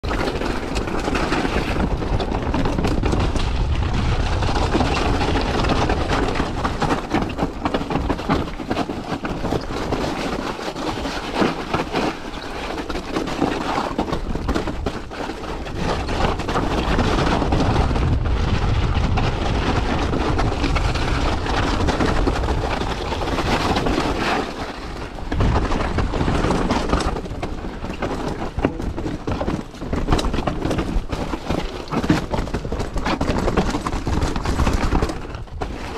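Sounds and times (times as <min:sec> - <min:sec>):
bike tyres clattering over stones: 0:00.0 - 0:35.9
wind buffeting microphone: 0:00.4 - 0:08.6, 0:14.2 - 0:31.5.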